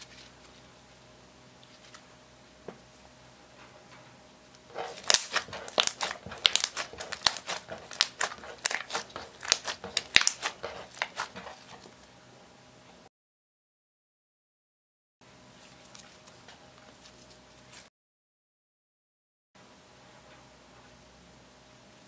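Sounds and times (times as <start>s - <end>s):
slime clicking and popping: 4.9s - 11.3s.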